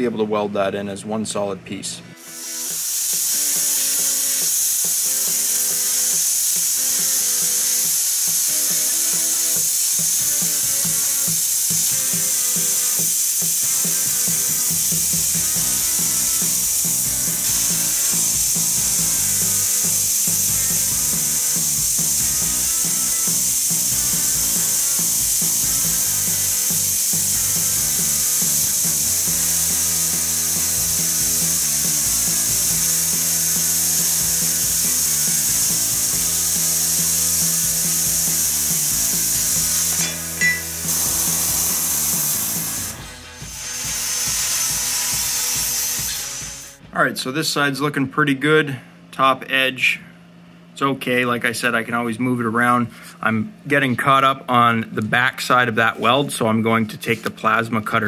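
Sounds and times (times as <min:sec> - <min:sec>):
background music: 0:00.0 - 0:47.0
plasma cutter hissing: 0:02.2 - 0:46.8.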